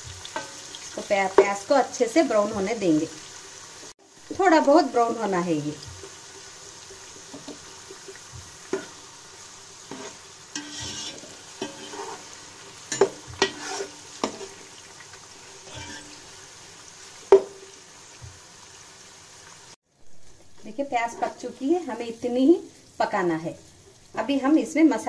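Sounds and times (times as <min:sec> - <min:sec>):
onion sizzling in oil: 0:00.0 - 0:25.0
spoon scraping a pot: 0:09.9 - 0:14.6, 0:15.6 - 0:16.2.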